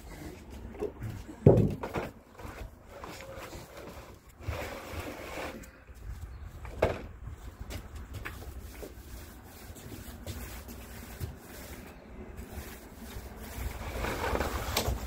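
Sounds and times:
low rumble of wind: 0.0s - 15.0s
footsteps on wooden deck: 0.3s - 4.5s, 5.9s - 11.5s
paint roller in tray: 2.4s - 5.8s, 8.3s - 15.0s.

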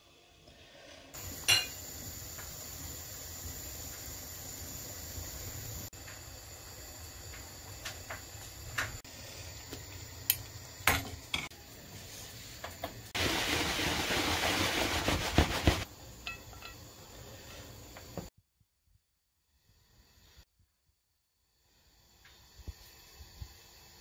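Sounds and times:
utensils clinking against pot: 1.4s - 1.8s, 16.2s - 16.8s.

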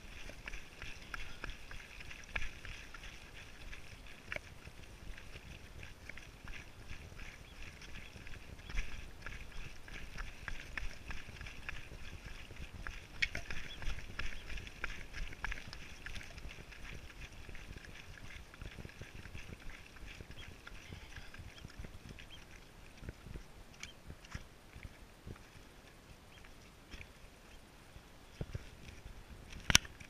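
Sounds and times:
footsteps on rocky path: 0.0s - 27.2s, 28.3s - 30.0s
wind rumble on microphone: 0.0s - 30.0s
trekking poles clicking on rock: 0.1s - 22.5s.

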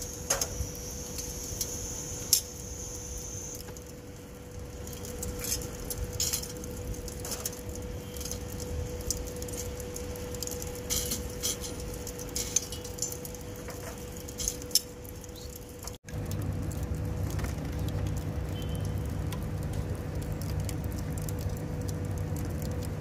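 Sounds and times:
steady hum: 0.0s - 23.0s
small hard objects clinking: 10.6s - 16.0s.

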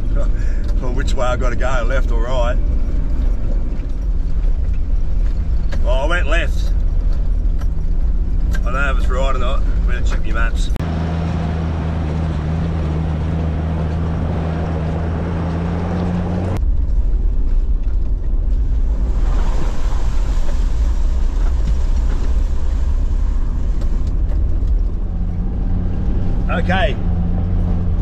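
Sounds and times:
vehicle engine running: 0.0s - 28.0s
vehicle rough rumble: 0.0s - 28.0s.

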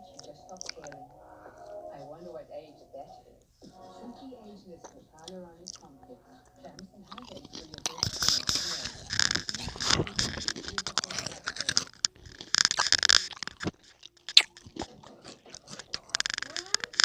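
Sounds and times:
crunchy chewing: 0.1s - 1.0s, 5.6s - 5.9s, 6.7s - 17.0s.

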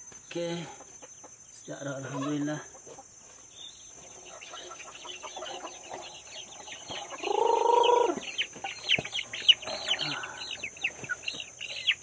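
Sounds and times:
chicks peeping: 0.2s - 12.0s
chicken drawn-out call: 4.1s - 12.0s.

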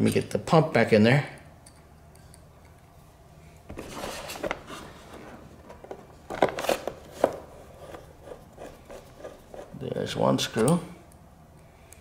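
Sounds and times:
handling rustling: 3.7s - 9.8s.

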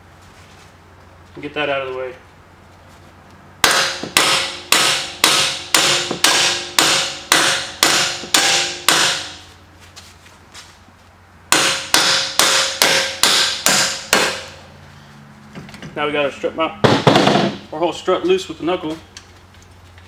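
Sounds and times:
hammer striking metal bolt: 3.6s - 9.4s, 11.5s - 14.6s.

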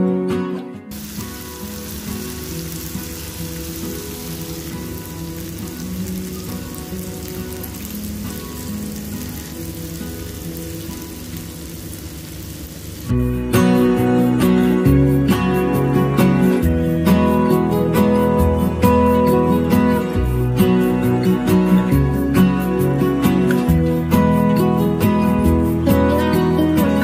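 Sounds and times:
acoustic guitar music: 0.0s - 27.0s
food sizzling in a frying pan: 0.9s - 13.2s.

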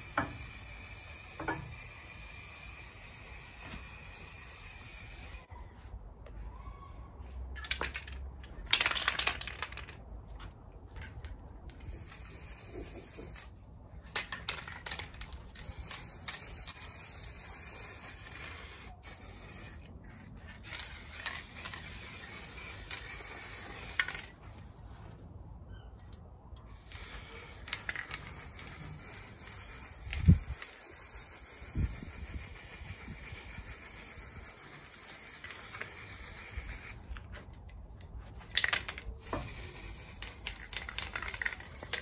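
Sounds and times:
spray paint can hissing: 0.0s - 5.5s, 11.7s - 24.4s, 26.7s - 37.4s, 38.4s - 42.0s.

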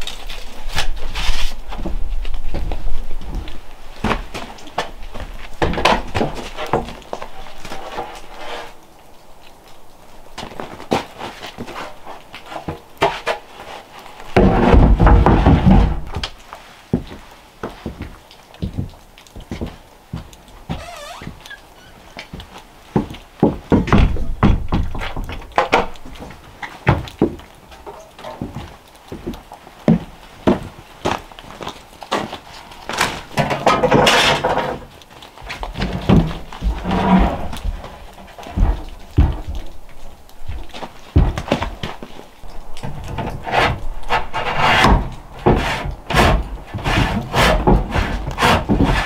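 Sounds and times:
light knocks and thuds: 14.3s - 16.4s, 22.2s - 31.3s, 32.1s - 49.0s.

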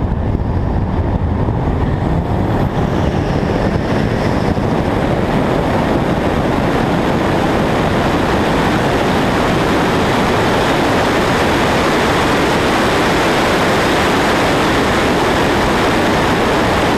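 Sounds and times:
wind and road noise: 0.0s - 16.9s.

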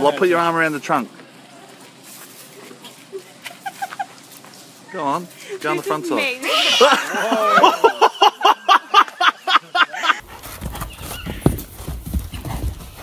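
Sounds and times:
person laughing hard: 3.2s - 4.1s, 6.4s - 10.2s
horse hooves on soft sand: 10.2s - 13.0s.

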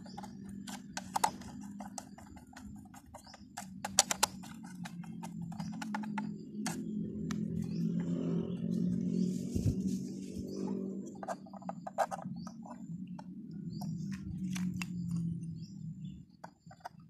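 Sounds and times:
plastic clicks and knocks: 0.0s - 7.5s
screwdriver clicking and scraping: 0.0s - 8.1s, 11.0s - 15.4s.

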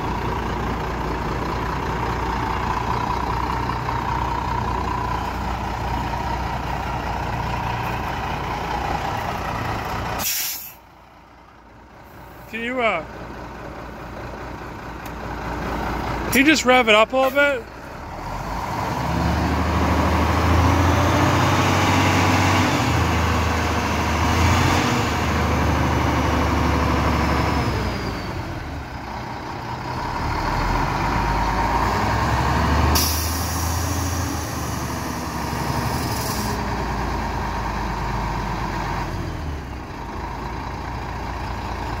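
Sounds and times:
diesel truck engine revving: 0.0s - 42.0s
air brake hiss: 10.2s - 10.8s, 33.0s - 34.2s.

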